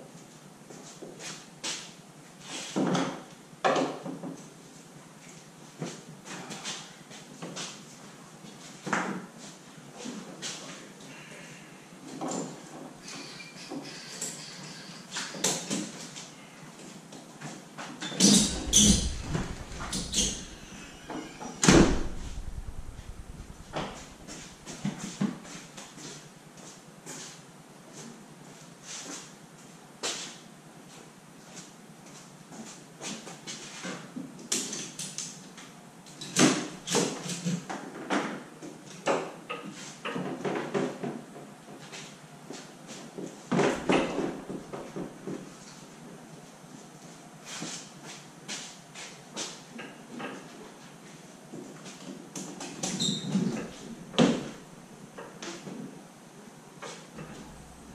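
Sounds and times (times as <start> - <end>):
knocks and clunks: 18.2 - 24.7
sharp bang: 18.4 - 24.7.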